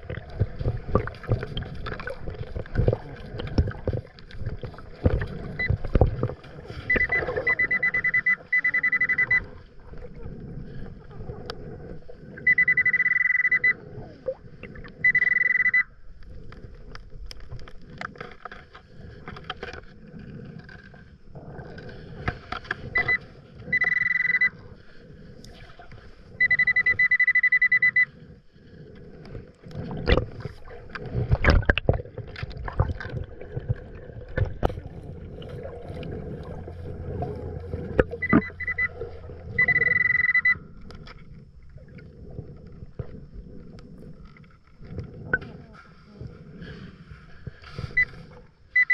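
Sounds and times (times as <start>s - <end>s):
hand digging sand underwater: 0.0s - 15.7s, 28.8s - 48.9s
metal detector alert tone: 6.9s - 9.5s, 12.4s - 13.8s, 15.0s - 15.9s, 23.0s - 24.6s, 26.4s - 28.1s, 38.0s - 40.6s.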